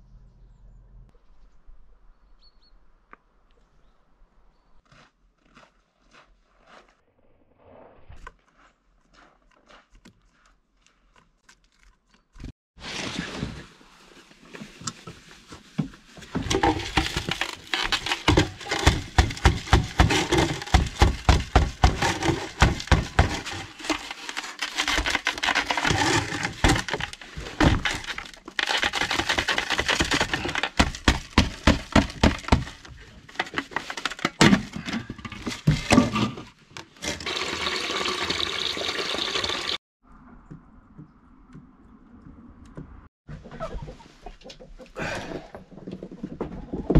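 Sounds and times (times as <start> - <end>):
ice cracking and crunching: 16.4 - 34.4.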